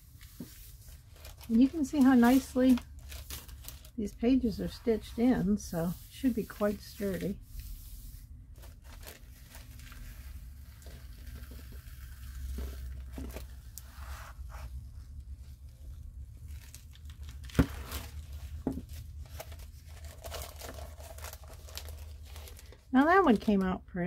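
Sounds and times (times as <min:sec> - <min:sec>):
paper rustling and crinkling: 0:00.0 - 0:23.8
pages turning: 0:16.4 - 0:22.8.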